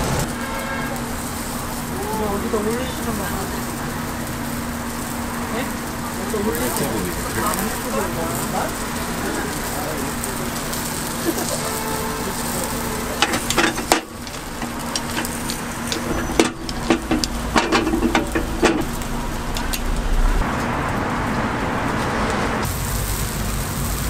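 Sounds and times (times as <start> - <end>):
batter sizzling in metal molds: 0.1 - 20.1, 22.6 - 24.0
metal molds clicking and clanking: 13.2 - 19.0.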